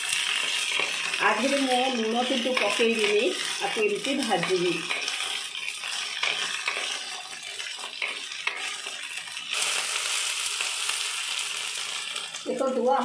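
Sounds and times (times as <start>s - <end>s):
okra sizzling in hot oil: 0.0s - 13.0s
spatula scraping and tapping pan: 0.2s - 9.4s.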